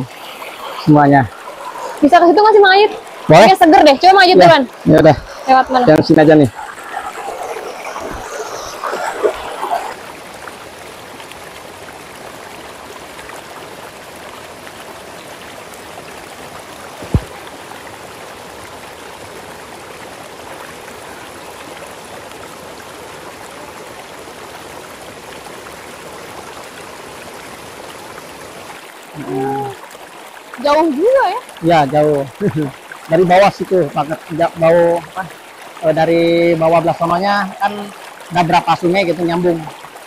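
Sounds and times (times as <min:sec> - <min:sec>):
river water rushing over rocks: 0:00.0 - 0:40.0
sharp thump: 0:17.0 - 0:17.3.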